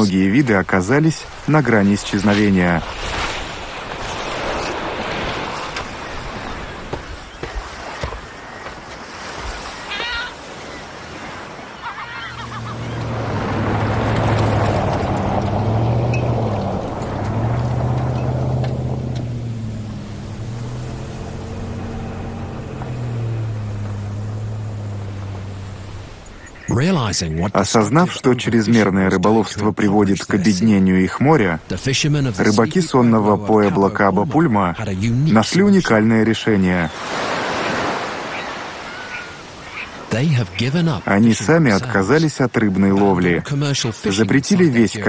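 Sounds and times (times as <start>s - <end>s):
surf: 0.0s - 45.0s
wind: 0.0s - 45.0s
gull calls: 9.7s - 10.9s, 11.7s - 13.1s, 37.5s - 40.1s
pickup truck driving by: 12.3s - 26.4s
low drone: 12.5s - 26.7s.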